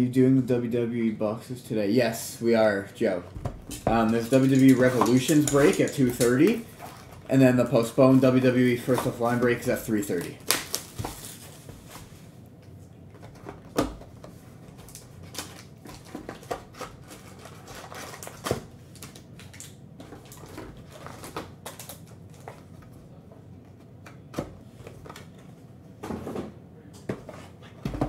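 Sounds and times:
plastic shrink-wrap crinkling: 0:09.2 - 0:11.9, 0:14.7 - 0:22.7.

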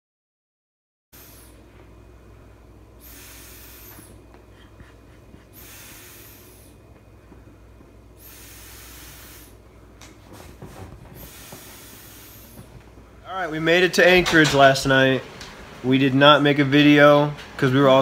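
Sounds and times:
person blowing into air mattress: 0:01.2 - 0:01.7, 0:02.9 - 0:04.3, 0:05.4 - 0:06.8, 0:08.1 - 0:09.6, 0:11.0 - 0:12.8
low steady hum: 0:01.2 - 0:18.0.

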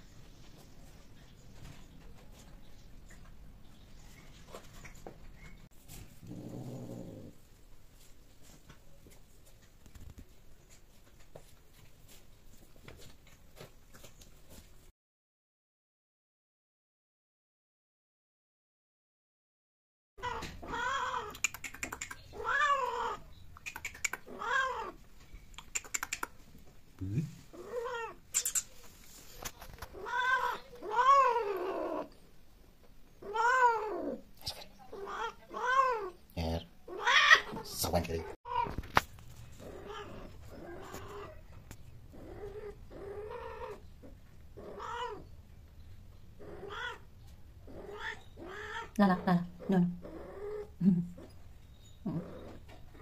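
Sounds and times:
cat yowling: 0:20.2 - 0:21.4, 0:22.4 - 0:23.2, 0:24.3 - 0:25.0, 0:30.0 - 0:32.1, 0:33.2 - 0:34.2, 0:35.0 - 0:36.2, 0:36.9 - 0:37.7, 0:39.7 - 0:41.4, 0:44.6 - 0:45.2, 0:46.4 - 0:47.0, 0:47.7 - 0:49.0
sharp clicks: 0:21.3 - 0:22.3, 0:23.6 - 0:24.3, 0:25.5 - 0:26.4.

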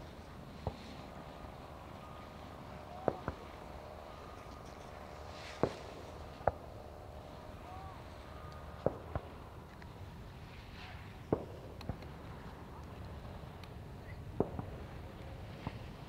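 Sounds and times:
steady low background noise: 0:00.0 - 0:16.0
fireworks shells bursting: 0:03.0 - 0:06.7.

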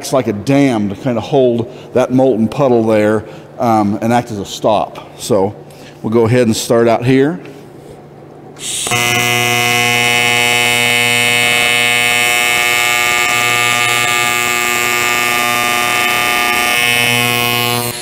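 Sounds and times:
welding arc buzzing: 0:08.6 - 0:18.0.

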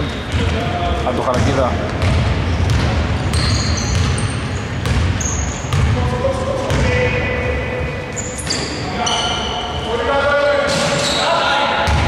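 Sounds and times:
low rumble of large hall: 0:00.0 - 0:12.0
sneakers squeaking on floor: 0:00.0 - 0:12.0
basketball dribbling: 0:00.2 - 0:07.0.

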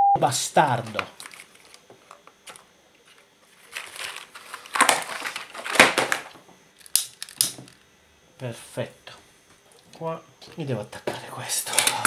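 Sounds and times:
plastic bag crinkling: 0:00.7 - 0:01.8, 0:02.5 - 0:06.3.

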